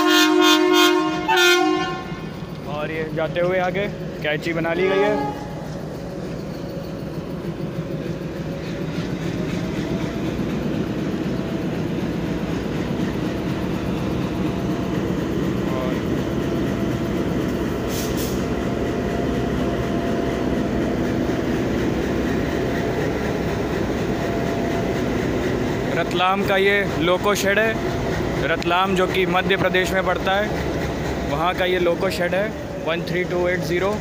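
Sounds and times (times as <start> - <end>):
diesel locomotive engine running: 0.0 - 34.0
wheels rumbling on rails: 0.0 - 34.0
short hiss: 17.9 - 18.4.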